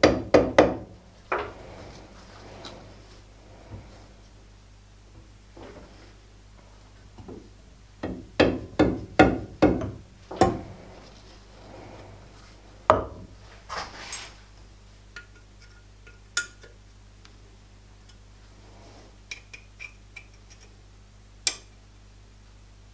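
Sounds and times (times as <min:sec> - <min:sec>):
sharp knocks on metal: 0:08.0 - 0:10.6.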